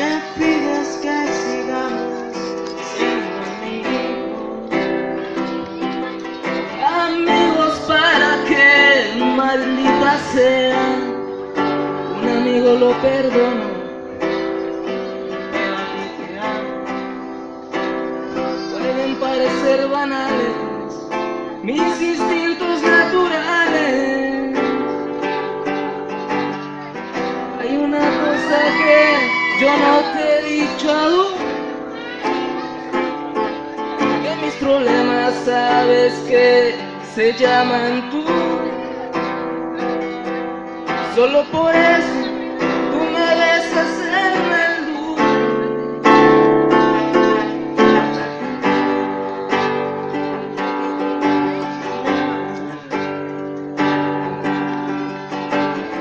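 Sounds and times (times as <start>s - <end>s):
person singing: 0.0s - 25.8s, 26.8s - 53.4s
acoustic guitar: 0.0s - 56.0s.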